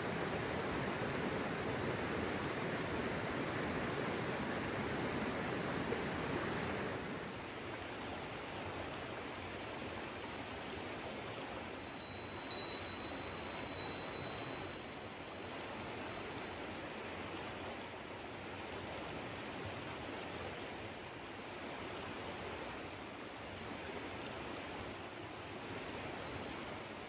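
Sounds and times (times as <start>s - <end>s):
mountain stream rushing: 0.0s - 27.0s
light metallic clink: 11.8s - 16.5s.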